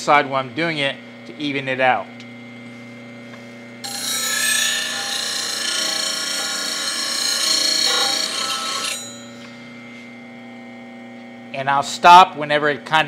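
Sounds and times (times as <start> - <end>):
bench grinder humming: 0.0 - 13.0
gouge grinding on wheel: 3.8 - 9.3.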